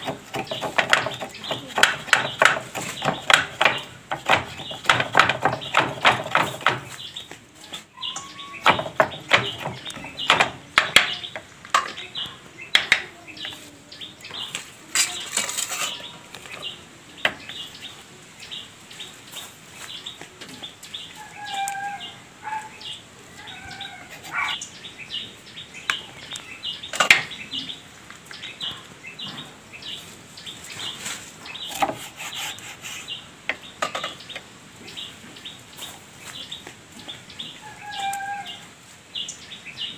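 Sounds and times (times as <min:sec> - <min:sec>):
knife chopping on wooden board: 0:00.0 - 0:07.0.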